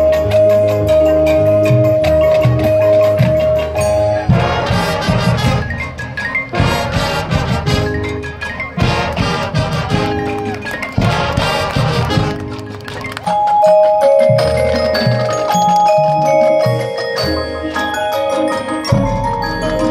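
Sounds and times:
marimba and xylophone: 0.0s - 19.9s
marching band brass: 2.8s - 13.5s.

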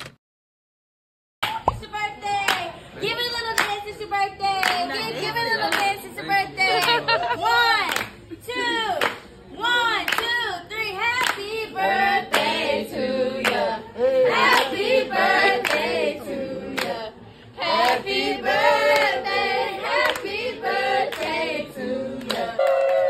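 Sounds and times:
group singing birthday song: 2.4s - 23.0s
hand clapping: 3.5s - 3.8s, 4.6s - 4.9s, 7.8s - 8.2s.

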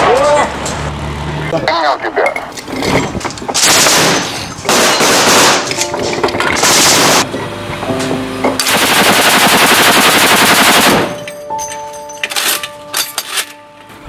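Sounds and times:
machine-gun burst: 3.6s - 5.7s, 6.6s - 7.2s, 8.6s - 11.2s.

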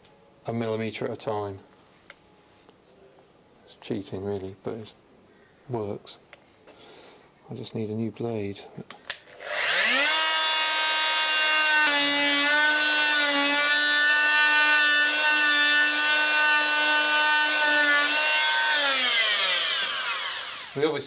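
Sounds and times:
electric saw whining: 9.3s - 21.0s.

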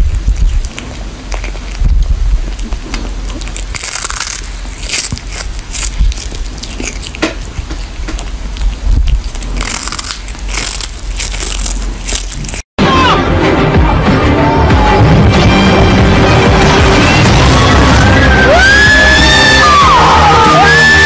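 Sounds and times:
steady low rumble: 0.0s - 12.6s
cat crunching on fish: 0.0s - 12.7s.

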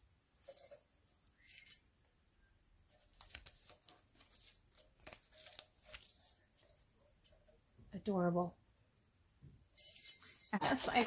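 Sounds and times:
packaging rustling: 3.0s - 6.8s.

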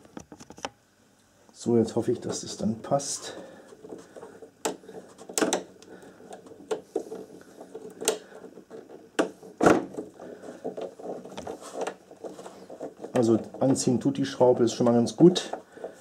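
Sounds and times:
clicks and knocks of handled parts: 3.7s - 14.1s.

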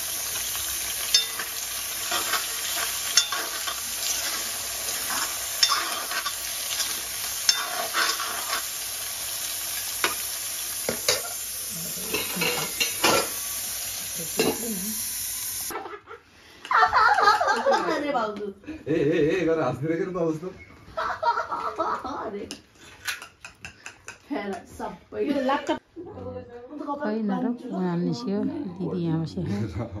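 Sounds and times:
potatoes sizzling in hot oil: 0.0s - 15.7s
ladle scraping and clinking a pan: 1.1s - 8.7s, 12.0s - 13.4s.

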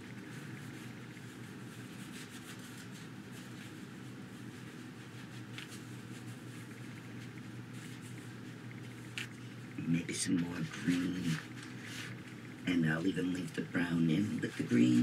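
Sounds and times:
paintbrush scrubbing textured surface: 0.0s - 9.1s, 10.4s - 12.2s
low steady hum: 0.0s - 15.0s.

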